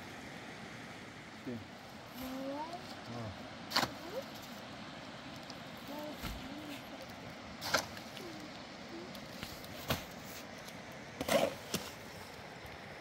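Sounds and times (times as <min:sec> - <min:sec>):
shovel scraping mortar in wheelbarrow: 0:07.6 - 0:08.0, 0:11.2 - 0:12.0.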